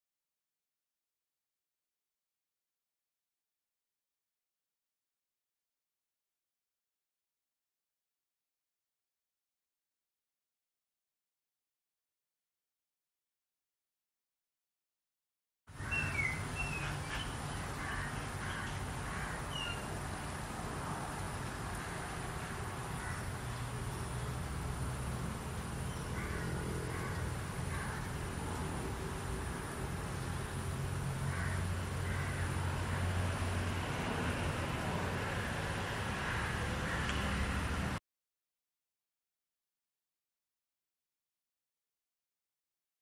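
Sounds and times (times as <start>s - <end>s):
low outdoor rumble: 15.7s - 38.0s
bird chirps: 15.8s - 18.8s, 19.4s - 19.9s.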